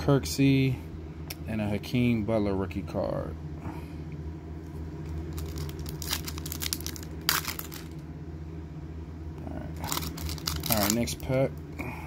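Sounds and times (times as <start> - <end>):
low hum: 0.0 - 12.0
foil wrapper crinkling: 5.1 - 8.0, 9.8 - 11.4.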